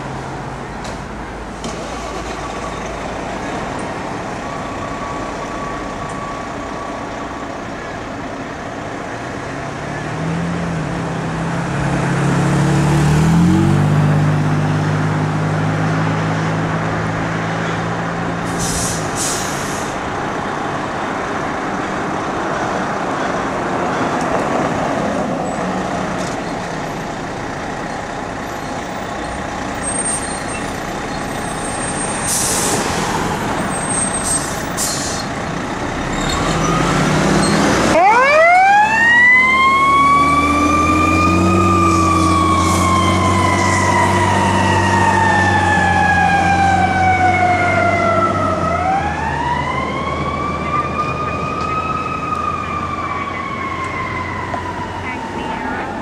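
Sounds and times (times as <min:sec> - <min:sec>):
fire engine diesel running: 0:00.0 - 0:09.5, 0:16.7 - 0:56.0
siren wailing: 0:36.5 - 0:56.0.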